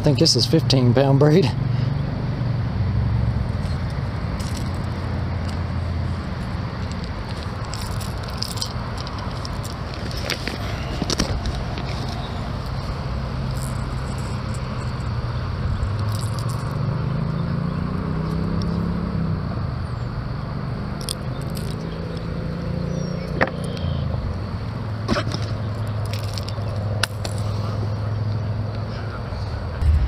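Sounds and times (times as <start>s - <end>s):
motor engine running: 29.8s - 30.0s.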